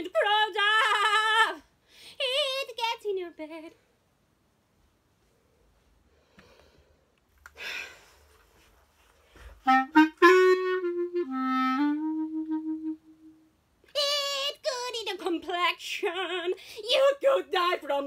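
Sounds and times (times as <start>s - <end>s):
person breathing in: 6.1s - 8.4s
clarinet playing: 9.6s - 13.5s.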